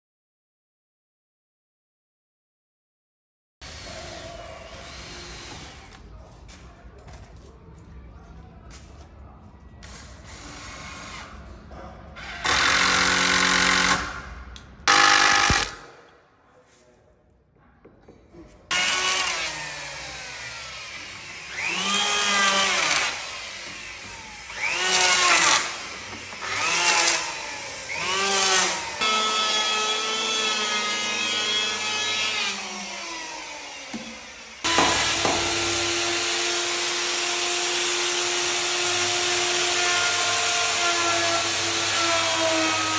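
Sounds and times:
drill driving screws: 0:03.7 - 0:06.0, 0:12.2 - 0:14.2, 0:14.9 - 0:15.9, 0:18.7 - 0:42.9
router running: 0:14.9 - 0:15.8, 0:18.7 - 0:42.9
electric hand planer: 0:18.8 - 0:42.9.

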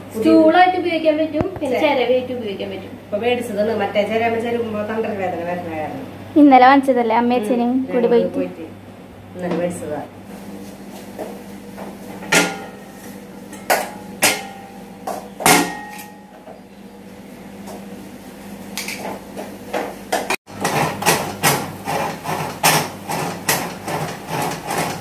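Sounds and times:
coconut scraping on serrated blade: 0:20.5 - 0:25.0.

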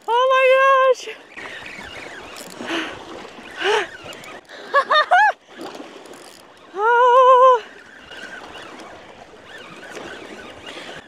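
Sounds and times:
water washing: 0:01.0 - 0:04.8.

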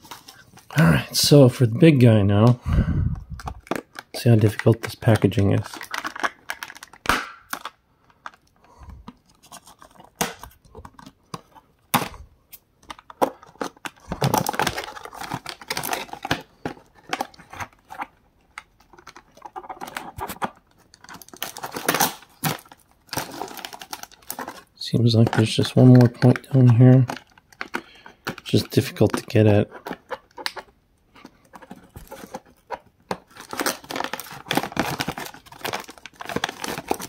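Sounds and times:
box rustling: 0:09.1 - 0:12.2, 0:12.8 - 0:37.0
scissors snipping packaging: 0:33.1 - 0:37.0.

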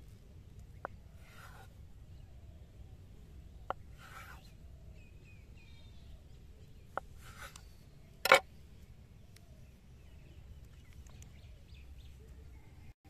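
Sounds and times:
faint bird chirps: 0:00.0 - 0:13.0
knife scraping: 0:01.2 - 0:01.7, 0:04.0 - 0:04.4, 0:07.2 - 0:07.6.

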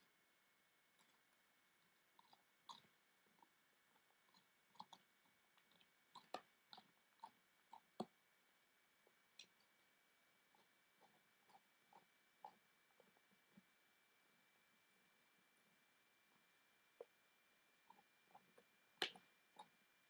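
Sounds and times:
dog gnawing on a bone: 0:01.0 - 0:08.1.

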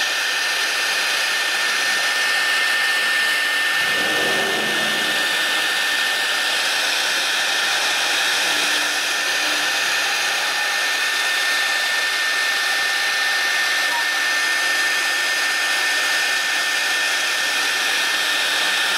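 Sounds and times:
cutter drilling into block: 0:00.0 - 0:04.3, 0:07.3 - 0:18.9
router spindle whining: 0:03.6 - 0:07.0.

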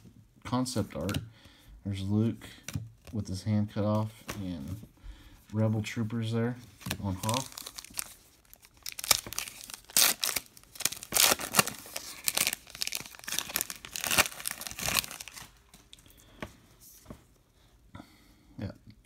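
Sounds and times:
foil wrapper tearing and crinkling: 0:06.9 - 0:15.7.

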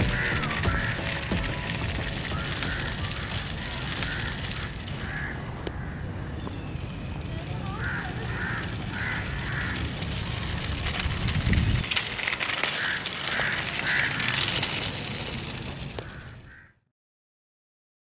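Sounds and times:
crackling ticks: 0:00.0 - 0:05.8
crows cawing: 0:00.0 - 0:06.2, 0:07.7 - 0:10.0, 0:12.6 - 0:14.5, 0:16.0 - 0:16.8
wind rumble on microphone: 0:09.3 - 0:12.2.

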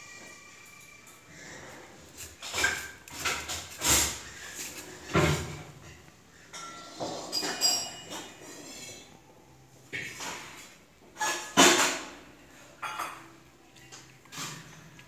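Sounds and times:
metal bowl scraping on marble floor: 0:00.4 - 0:09.2, 0:10.0 - 0:12.0.

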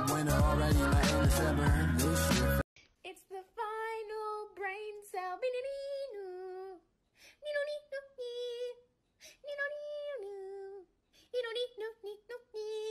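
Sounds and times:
loud music: 0:00.0 - 0:02.6
high voice singing softly: 0:00.0 - 0:12.9.

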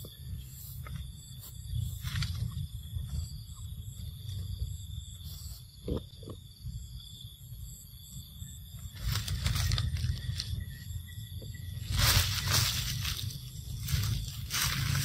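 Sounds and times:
high drone of insects: 0:00.0 - 0:15.0
wind rumble on microphone: 0:00.0 - 0:15.0.

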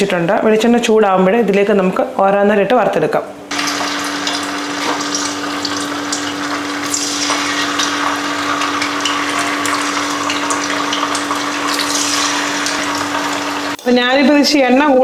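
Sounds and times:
oil crackling: 0:03.5 - 0:13.9
fish sizzling in a frying pan: 0:03.5 - 0:14.4.

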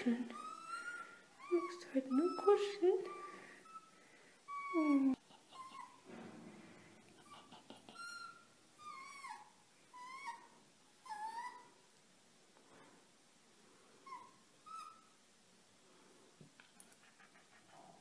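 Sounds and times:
fox whining: 0:00.3 - 0:06.0, 0:07.2 - 0:11.8, 0:14.0 - 0:15.2.

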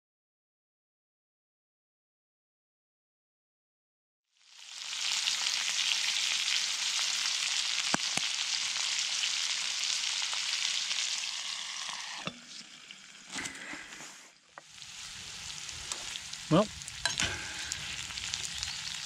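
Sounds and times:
vegetables sizzling in a skillet: 0:04.3 - 0:19.0.

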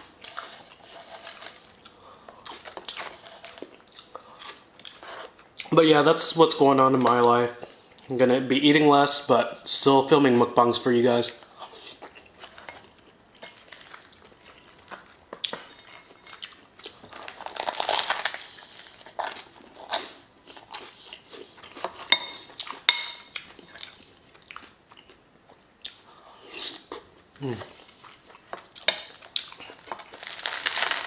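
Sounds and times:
chewing crusty bread: 0:00.0 - 0:05.7, 0:11.6 - 0:25.2, 0:26.7 - 0:31.0.

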